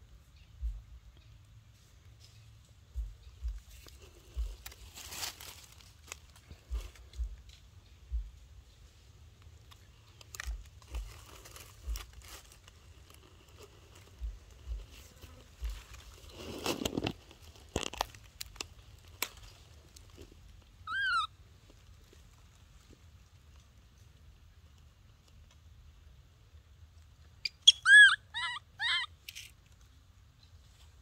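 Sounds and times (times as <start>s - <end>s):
dry leaves rustling and crunching: 3.6s - 7.6s, 9.4s - 23.8s.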